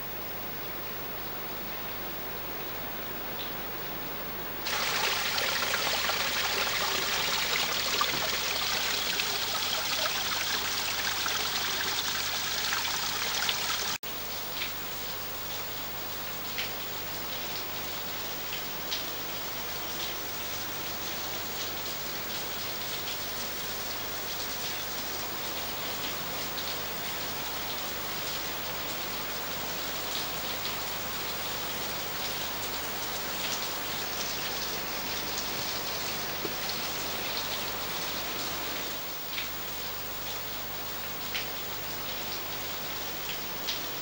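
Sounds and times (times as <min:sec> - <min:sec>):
small waterfall rushing: 0:04.7 - 0:14.0
water drips and splashes: 0:04.7 - 0:14.8, 0:39.1 - 0:44.0.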